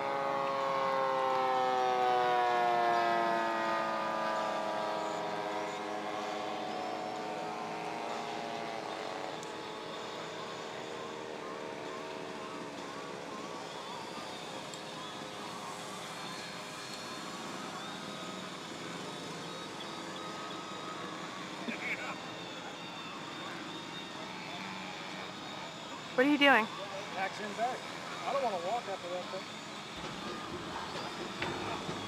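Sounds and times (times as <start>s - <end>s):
model airplane engine flying past: 4.3s - 32.0s.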